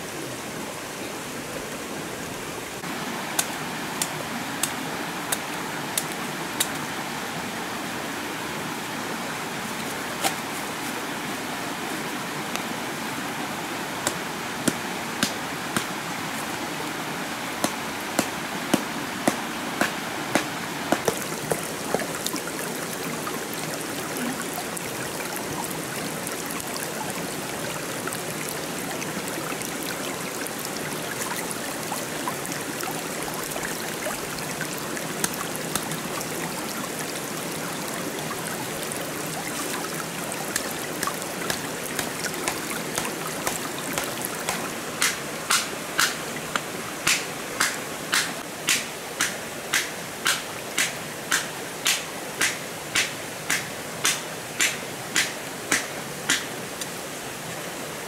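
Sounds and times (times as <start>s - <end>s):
stream rushing: 0.0s - 58.0s
knife chopping bamboo: 17.6s - 21.2s.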